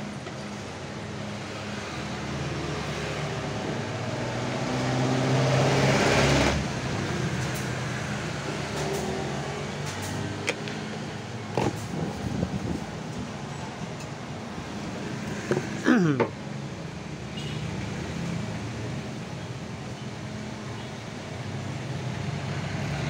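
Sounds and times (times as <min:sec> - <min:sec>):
vehicle engine humming: 0:00.0 - 0:23.0.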